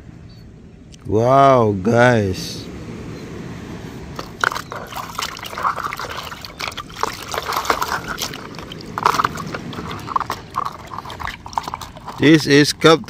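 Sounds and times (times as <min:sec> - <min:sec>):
water sloshing in plastic bowl: 0:04.2 - 0:12.8.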